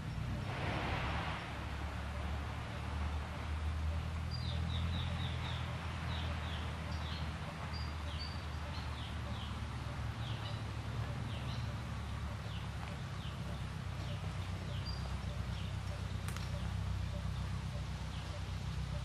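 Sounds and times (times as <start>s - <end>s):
low rumble: 0.0s - 5.6s
outdoor background noise: 0.0s - 19.0s.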